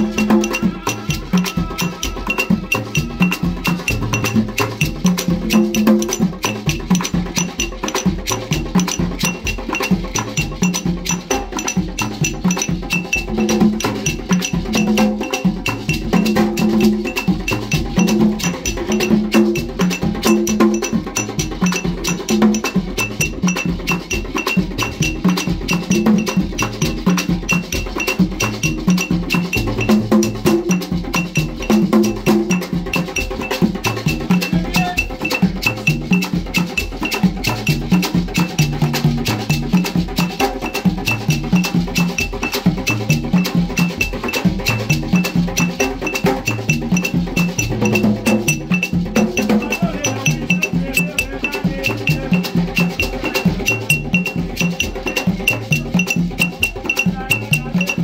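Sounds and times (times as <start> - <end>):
group singing chants: 0.0 - 4.0
hand drums beating: 0.0 - 58.0
metal bell ringing: 0.0 - 58.0.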